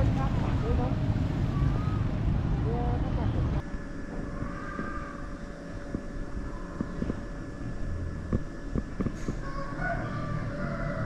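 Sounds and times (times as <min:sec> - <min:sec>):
vehicle rumble: 0:00.0 - 0:03.8.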